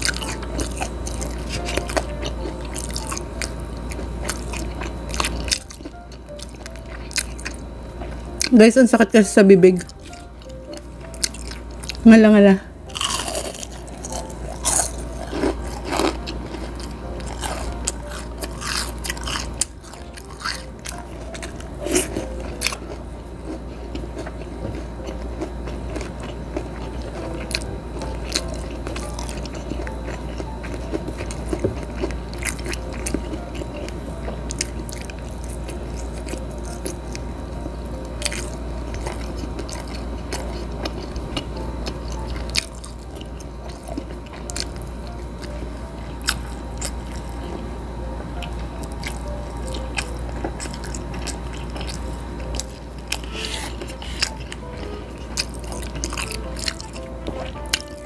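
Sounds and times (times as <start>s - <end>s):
crunchy chewing: 0.0s - 8.6s, 9.8s - 12.0s, 12.8s - 58.0s.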